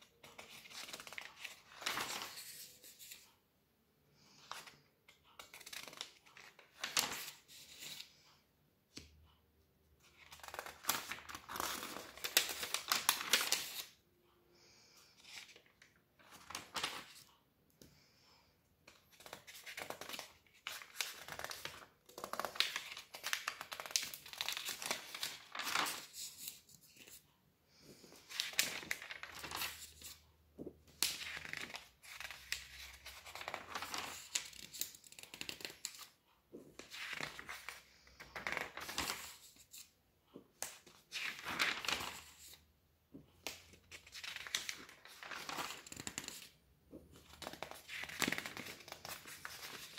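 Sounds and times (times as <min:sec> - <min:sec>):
magazine pages rustling: 0:00.2 - 0:03.2, 0:05.4 - 0:08.1, 0:10.0 - 0:14.0, 0:15.2 - 0:17.3, 0:18.9 - 0:27.2, 0:28.1 - 0:30.2, 0:30.9 - 0:36.1, 0:36.7 - 0:39.9, 0:40.6 - 0:42.6, 0:43.5 - 0:46.5, 0:47.2 - 0:49.9.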